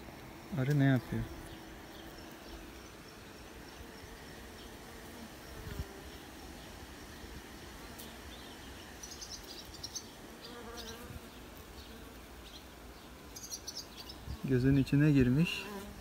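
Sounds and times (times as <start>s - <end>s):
single bee buzzing: 0.0s - 12.7s, 13.3s - 16.0s
bees humming: 0.0s - 16.0s.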